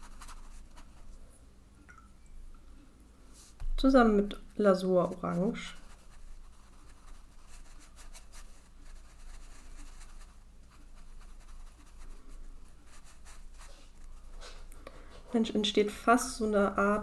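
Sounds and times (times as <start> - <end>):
paintbrush scratching on paper: 0.0 - 1.1, 4.4 - 14.6.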